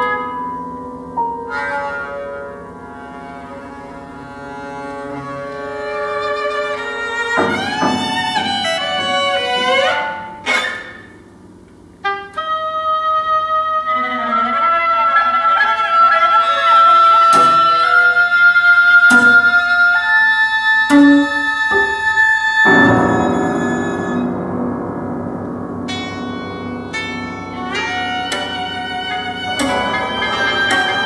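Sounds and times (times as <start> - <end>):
long held instrumental notes: 0.0 - 15.6, 16.2 - 31.0
struck note: 20.9 - 31.0.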